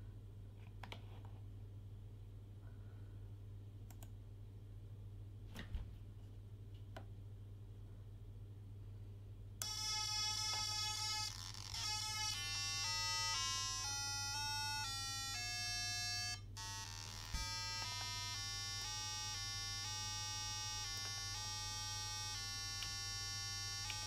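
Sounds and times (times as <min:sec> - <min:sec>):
buzzy square-wave tone: 0:09.6 - 0:24.0.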